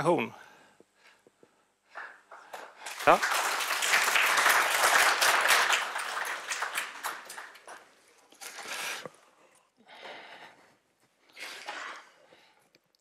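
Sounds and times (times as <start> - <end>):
audience applauding: 2.0 - 8.0.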